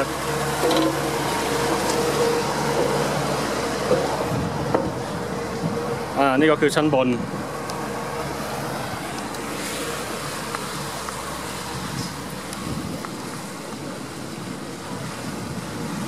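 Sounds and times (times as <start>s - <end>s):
boat motor running: 0.0s - 16.0s
wind on microphone: 3.3s - 6.2s, 11.6s - 16.0s.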